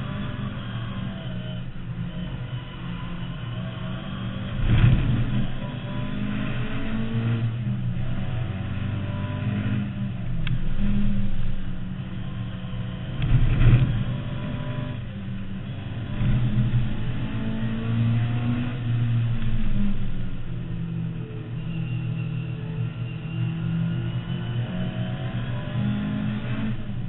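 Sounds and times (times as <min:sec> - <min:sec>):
car engine revving: 0:00.0 - 0:27.0.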